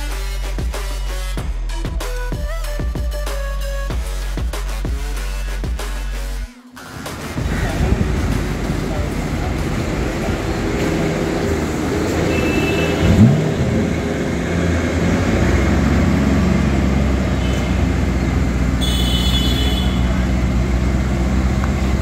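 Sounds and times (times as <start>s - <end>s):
engine droning: 0.0s - 22.0s
engine revving: 0.0s - 22.0s
street traffic: 0.0s - 22.0s.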